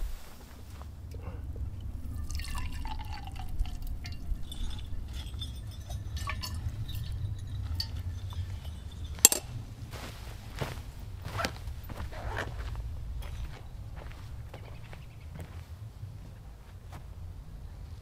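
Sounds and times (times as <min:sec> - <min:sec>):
coffee pouring into a mug: 0:01.8 - 0:09.4
liquid splashing and dripping: 0:02.1 - 0:08.0.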